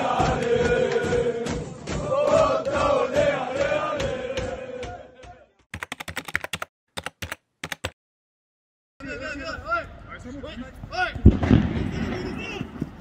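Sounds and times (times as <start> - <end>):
supporters chanting: 0.0 - 5.6
sharp clicks: 5.8 - 8.0.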